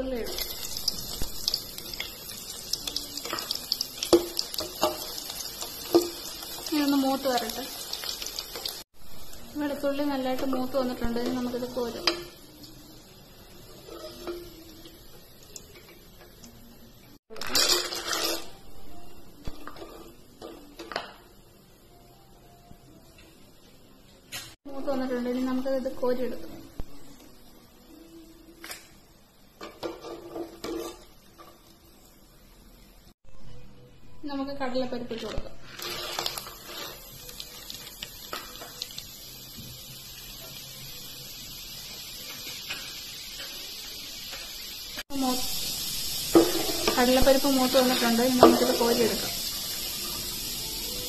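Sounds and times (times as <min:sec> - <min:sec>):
peanuts sizzling in hot oil: 0:00.0 - 0:16.6, 0:35.6 - 0:51.0.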